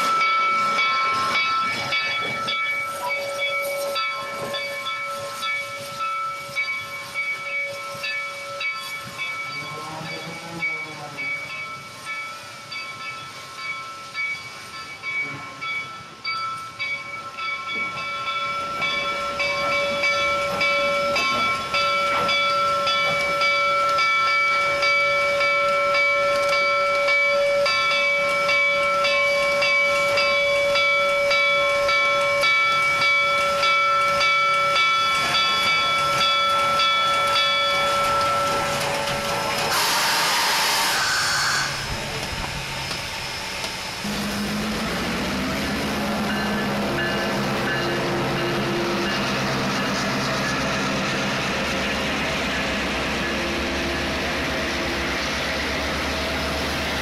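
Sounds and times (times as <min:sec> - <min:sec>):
diesel locomotive engine drone: 0:00.0 - 0:57.0
steam locomotive bell ringing: 0:00.0 - 0:57.0
steam hiss blast: 0:38.7 - 0:57.0.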